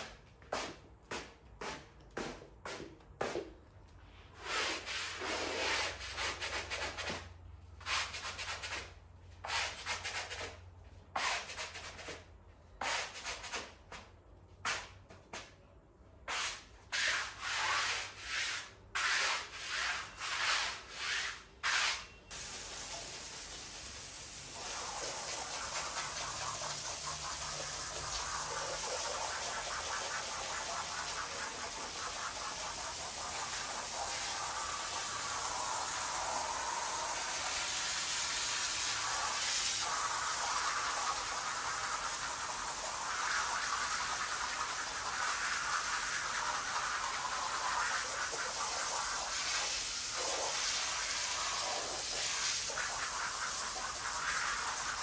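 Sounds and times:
brush scrubbing soapy rug: 4.4 - 7.2, 16.3 - 23.5, 24.6 - 36.6, 38.8 - 55.0
pressure washer jet hissing: 22.3 - 55.0.

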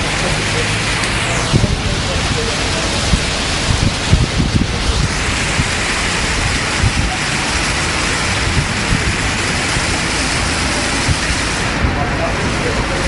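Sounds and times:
fountain jets splashing on paving: 0.0 - 13.0
low bumps: 0.0 - 13.0.

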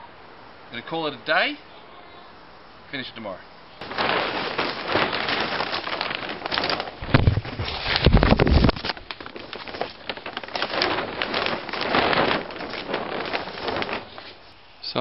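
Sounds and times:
handling bumps: 3.8 - 14.5
plastic sheeting crinkling: 3.8 - 15.0.

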